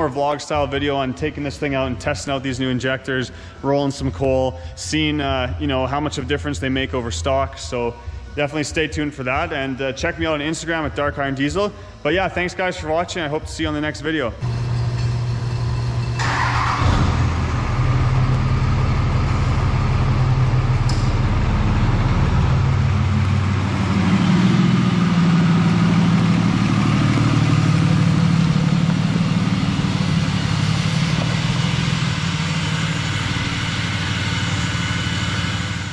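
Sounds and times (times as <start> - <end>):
pickup truck engine passing: 16.2 - 35.9.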